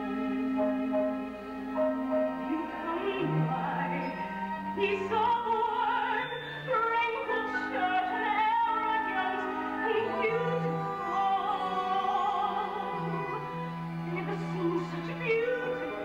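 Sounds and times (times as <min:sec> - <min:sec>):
sustained accompaniment chords: 0:00.0 - 0:16.0
person singing with vibrato: 0:02.4 - 0:13.4.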